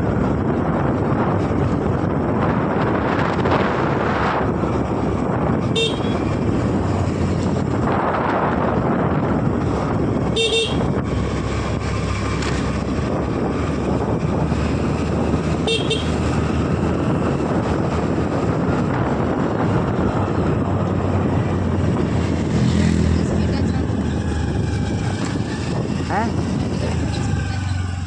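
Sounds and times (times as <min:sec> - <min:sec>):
scooter engine and road noise: 0:00.0 - 0:28.0
wind rush: 0:00.0 - 0:28.0
scooter horn toots: 0:05.6 - 0:06.4, 0:10.3 - 0:11.0, 0:15.6 - 0:16.3.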